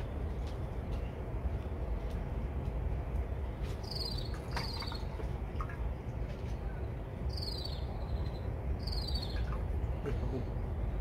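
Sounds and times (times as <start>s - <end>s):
steady low rumble: 0.0s - 11.0s
insect chirping: 7.3s - 9.4s.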